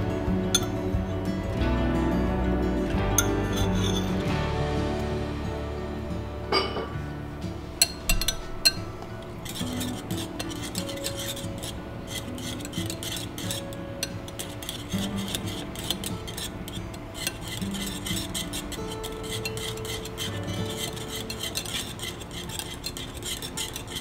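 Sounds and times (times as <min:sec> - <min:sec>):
whisk scraping glass bowl: 0:00.0 - 0:06.8, 0:07.5 - 0:24.0
whisk clinking on bowl: 0:07.8 - 0:24.0.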